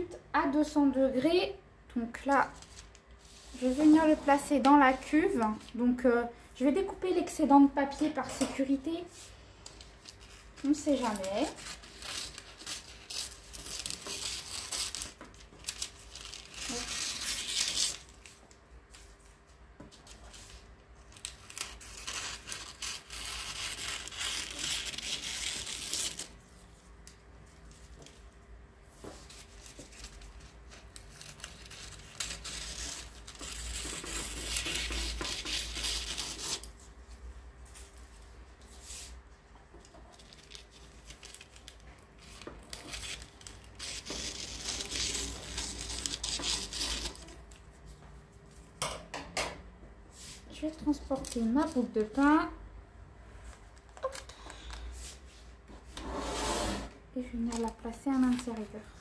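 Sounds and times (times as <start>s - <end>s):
scissors snipping paper: 10.1s - 18.1s, 21.2s - 26.3s, 29.6s - 36.7s, 40.3s - 47.4s.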